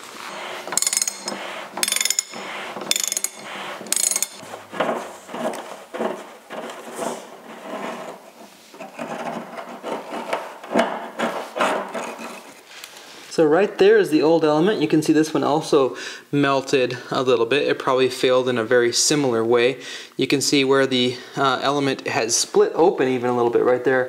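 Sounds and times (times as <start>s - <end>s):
metal element scraping and knocking: 0.0s - 12.6s
ratchet wrench clicking: 0.2s - 4.4s.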